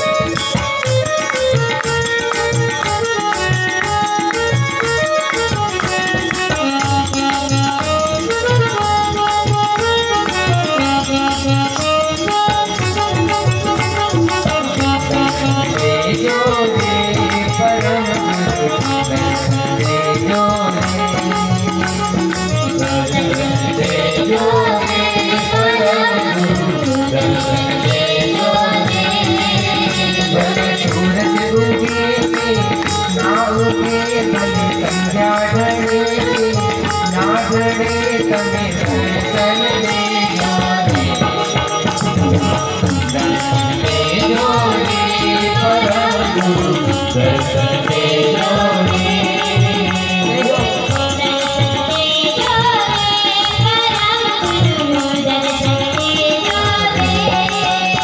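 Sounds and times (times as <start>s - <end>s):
instrumental accompaniment: 0.0s - 58.0s
man singing into microphone: 0.0s - 58.0s.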